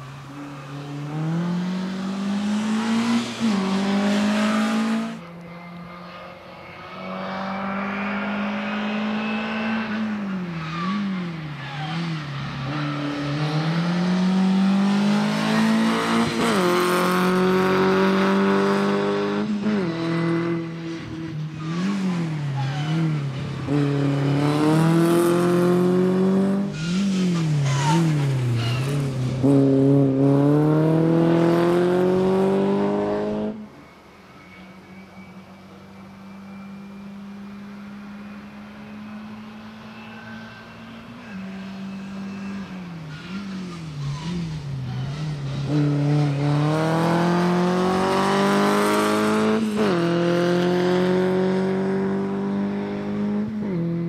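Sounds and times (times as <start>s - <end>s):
race car engine revving: 0.9s - 5.2s, 43.1s - 53.8s.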